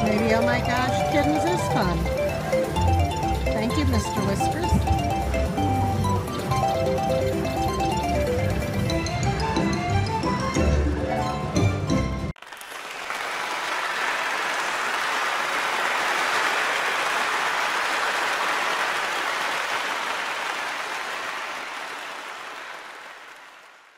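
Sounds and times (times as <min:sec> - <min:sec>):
crowd applause: 0:12.4 - 0:23.9.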